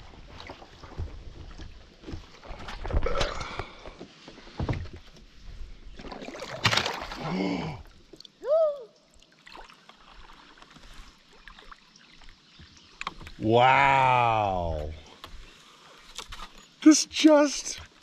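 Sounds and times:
paddle splashing in water: 0:05.9 - 0:07.4, 0:09.3 - 0:13.3.

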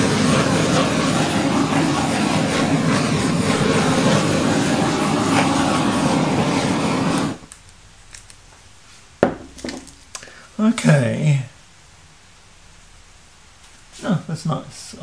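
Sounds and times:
gas torch flame hissing: 0:00.0 - 0:07.6.

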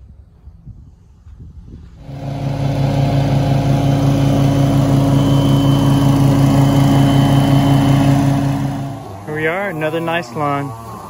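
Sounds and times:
lawn mower engine running: 0:02.0 - 0:10.2.

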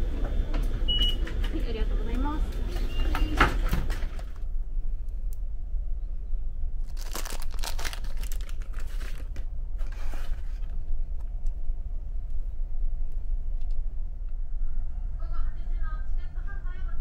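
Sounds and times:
steady low hum: 0:00.0 - 0:17.0
cardboard and paper rustling: 0:07.0 - 0:10.8.

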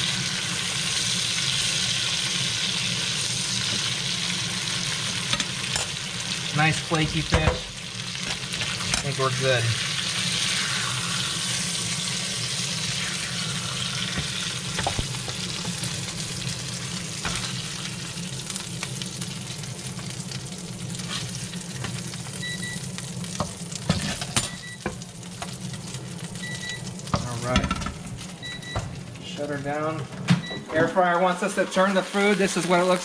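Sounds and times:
fish sizzling in oil: 0:00.0 - 0:30.0, 0:31.0 - 0:33.0
spatula scraping pan: 0:21.0 - 0:21.9
air fryer beeps: 0:22.2 - 0:23.0, 0:24.4 - 0:25.0, 0:26.3 - 0:27.4, 0:28.3 - 0:29.0, 0:30.3 - 0:31.0.

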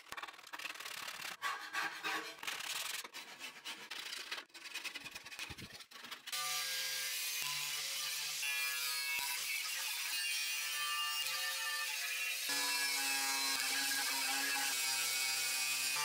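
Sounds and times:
sandpaper rubbing on metal: 0:00.2 - 0:06.4.

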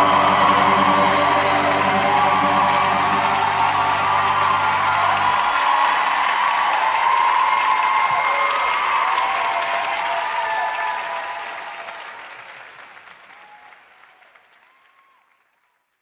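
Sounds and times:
shouts from crowd: 0:00.0 - 0:12.2
audience applauding and cheering: 0:00.0 - 0:16.0.

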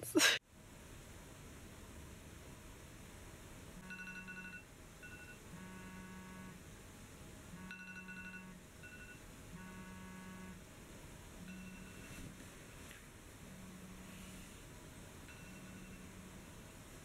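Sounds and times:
phone timer alarm ringing: 0:03.8 - 0:05.5, 0:07.6 - 0:09.2, 0:11.5 - 0:12.3, 0:15.3 - 0:16.1.

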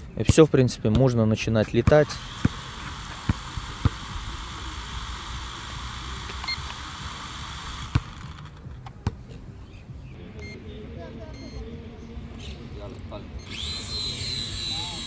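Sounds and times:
high beep: 0:06.4 - 0:06.6, 0:10.4 - 0:10.6, 0:11.3 - 0:11.7.

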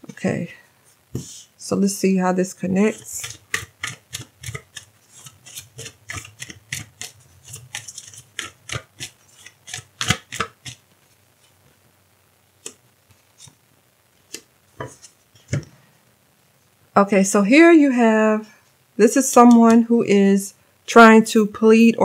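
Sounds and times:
cards shuffled by hand: 0:03.0 - 0:10.8.

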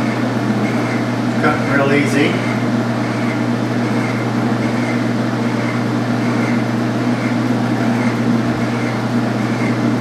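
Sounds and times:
metal lathe cutting: 0:00.0 - 0:10.0.

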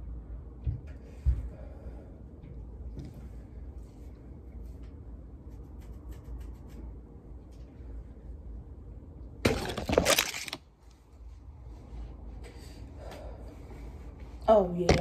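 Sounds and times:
low steady hum: 0:00.0 - 0:15.0
phone handling rustling: 0:09.5 - 0:10.6.

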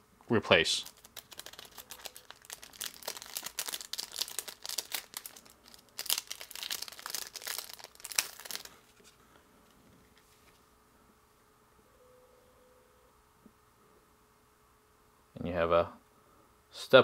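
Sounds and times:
plastic sheets crinkling: 0:00.5 - 0:09.2.

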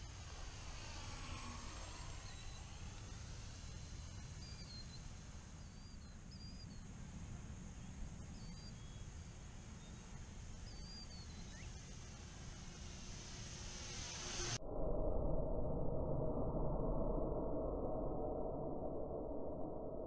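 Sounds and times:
distant electric motor whine: 0:00.0 - 0:14.6
wind rumbling on microphone: 0:00.0 - 0:20.0
bird chirps: 0:01.9 - 0:07.0, 0:07.7 - 0:12.1.

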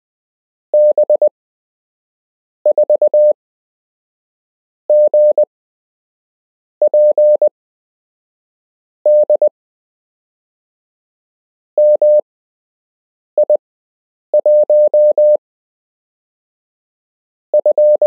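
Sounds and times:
morse code beeps: 0:00.8 - 0:01.3, 0:02.7 - 0:03.4, 0:04.9 - 0:05.5, 0:06.9 - 0:07.5, 0:09.1 - 0:09.5, 0:11.8 - 0:12.2, 0:14.4 - 0:15.4, 0:17.6 - 0:18.0.

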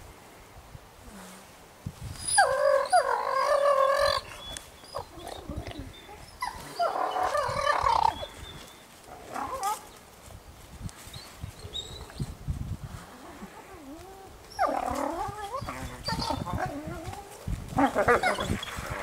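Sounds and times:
wolves whining and yelping: 0:02.2 - 0:09.9, 0:13.4 - 0:19.0
wolf high calls: 0:02.4 - 0:08.4, 0:14.5 - 0:19.0.

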